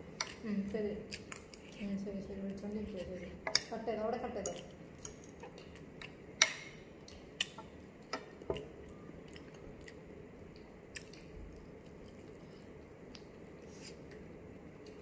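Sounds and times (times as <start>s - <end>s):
quiet eating noises: 0.0s - 15.0s.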